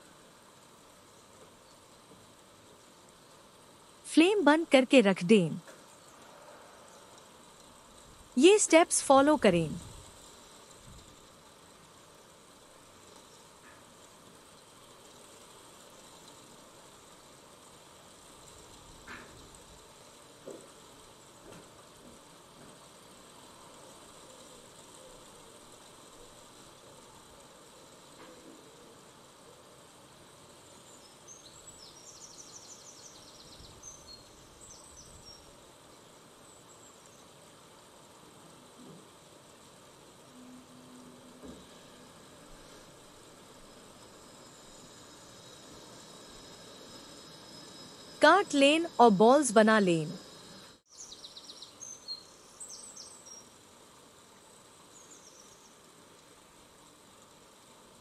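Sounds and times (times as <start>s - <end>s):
steady hiss: 0.0s - 58.0s
faint bird chirping: 30.6s - 37.5s, 40.2s - 53.6s, 54.2s - 55.9s.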